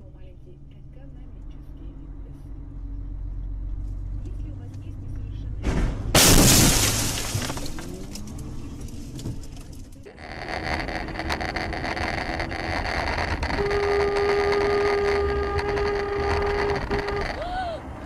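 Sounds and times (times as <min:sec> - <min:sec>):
car cabin road noise: 0:00.0 - 0:18.0
car crash smash: 0:05.7 - 0:09.9
car horn blast: 0:13.4 - 0:17.4.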